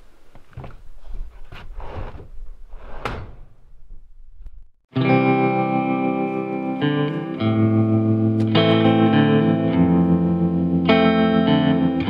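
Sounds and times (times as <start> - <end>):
gear scraping and knocking: 0.3 - 4.8
distorted electric guitar music: 4.9 - 12.0.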